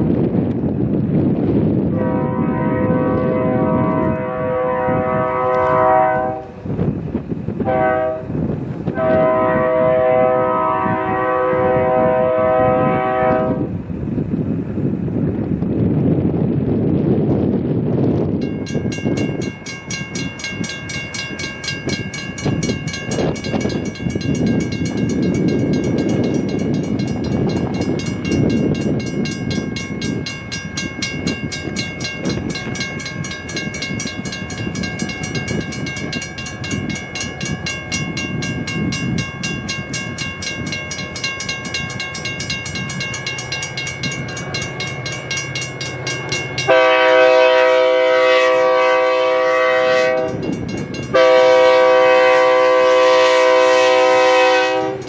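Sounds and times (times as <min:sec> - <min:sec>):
steam train rumbling past: 0:00.0 - 0:55.0
steam whistle blowing: 0:02.0 - 0:06.5, 0:07.6 - 0:08.3, 0:08.9 - 0:13.7, 0:46.7 - 0:50.4, 0:51.1 - 0:55.0
bell ringing rapidly: 0:18.4 - 0:46.8, 0:50.2 - 0:51.2.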